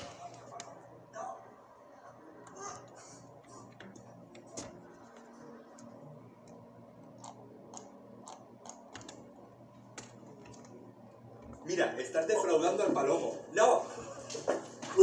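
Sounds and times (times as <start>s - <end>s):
keyboard keys clicking: 3.7s - 9.2s, 9.9s - 10.8s.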